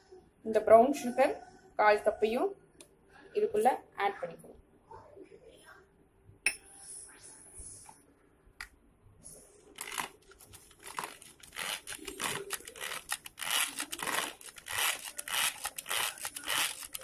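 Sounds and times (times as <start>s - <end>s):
whisk scraping plastic bowl: 9.8s - 17.0s.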